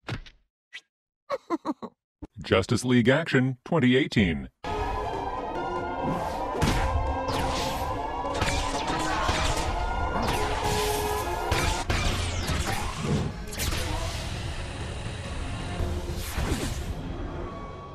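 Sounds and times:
action music: 4.6s - 12.2s.

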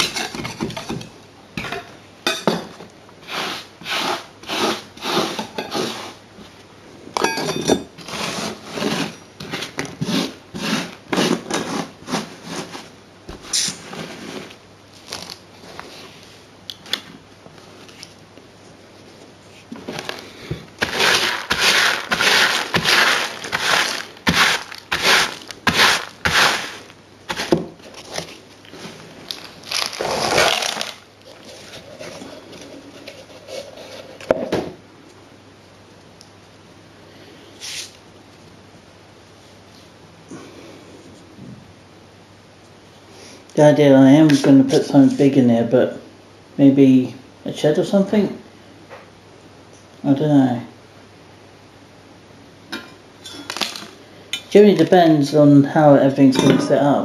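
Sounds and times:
metal tool scraping grit: 3.2s - 6.2s, 8.0s - 12.7s, 20.8s - 27.6s.

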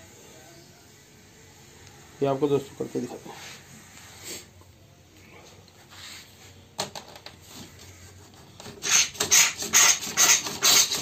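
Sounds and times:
steel pins scraping a sheet: 7.5s - 11.0s.

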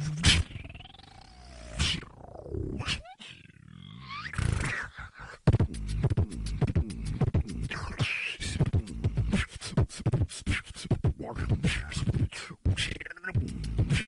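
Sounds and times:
person beatboxing: 0.0s - 1.0s, 1.8s - 2.2s, 4.2s - 14.0s
vocal scratch sound: 0.0s - 14.0s.

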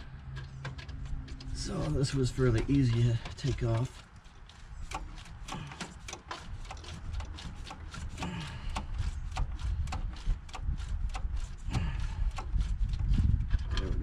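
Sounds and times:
low rumble: 10.7s - 14.0s.

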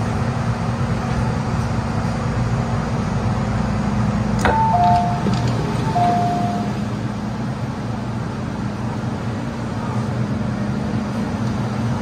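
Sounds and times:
train interior hum: 0.0s - 12.0s
door chime: 4.4s - 6.8s.

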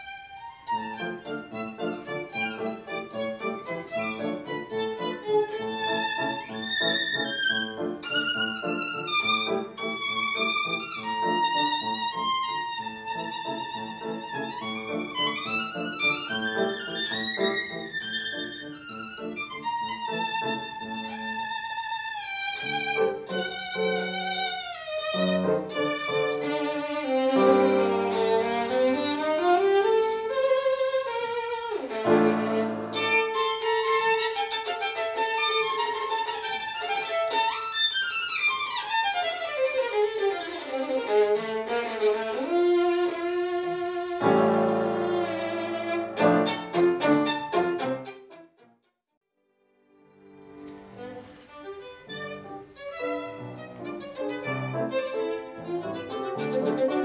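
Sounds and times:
piano chords: 0.0s - 21.8s, 22.6s - 30.9s, 31.8s - 33.7s, 44.0s - 48.2s, 52.0s - 57.0s
violin melody: 0.0s - 48.9s, 49.7s - 57.0s.

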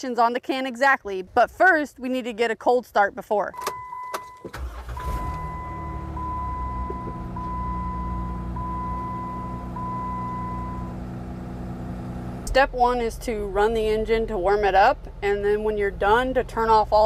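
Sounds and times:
car engine starting and idling: 3.6s - 17.0s.

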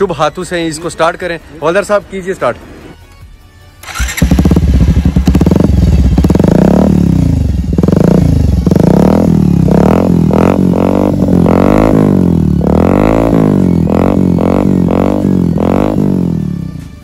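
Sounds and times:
motorcycle engine revving: 3.8s - 17.0s.

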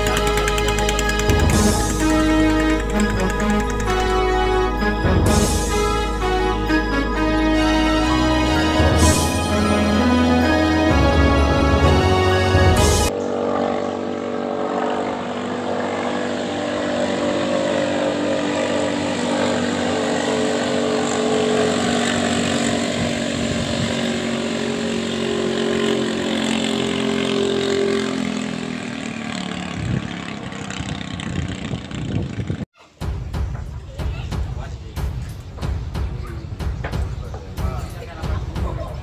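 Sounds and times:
music track: 0.0s - 13.1s
boat engine droning: 0.0s - 32.1s.

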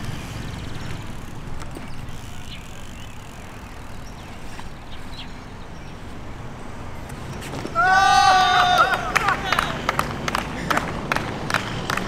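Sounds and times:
bike rolling over concrete: 0.0s - 6.2s.

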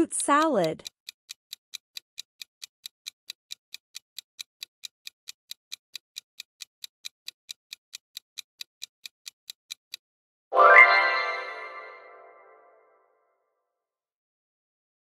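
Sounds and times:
clock ticking: 0.0s - 10.0s.

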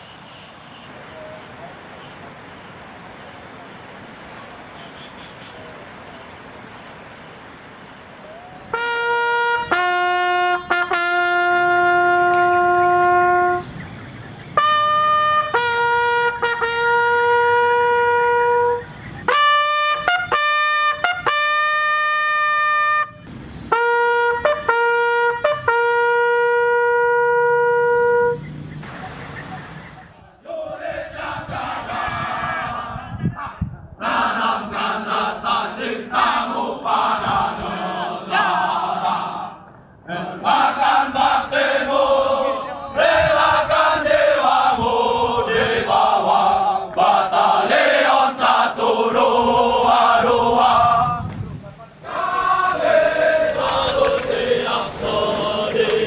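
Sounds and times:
bugle call: 8.2s - 13.7s, 14.6s - 30.2s, 52.0s - 56.0s.

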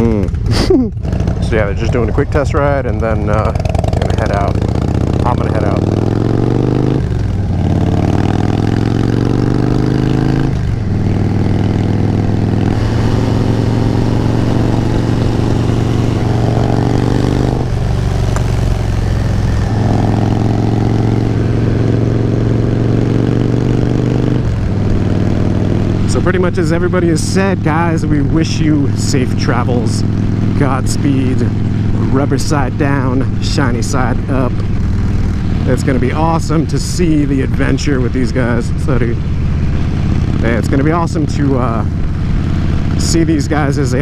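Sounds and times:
motorcycle engine accelerating: 0.0s - 44.0s.

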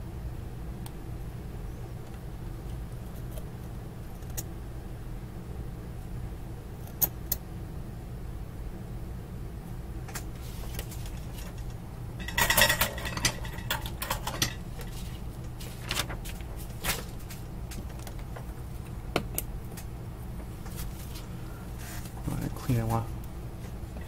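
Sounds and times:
steady low hum: 0.0s - 24.0s
soldering iron set in metal stand: 10.1s - 19.9s.

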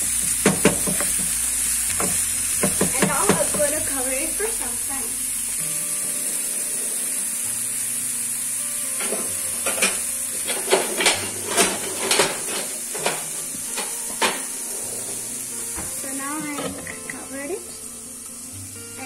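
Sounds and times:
food frying in oil: 0.0s - 19.0s
utensil knocking against pan: 0.3s - 1.4s, 2.0s - 3.8s, 9.0s - 14.5s.

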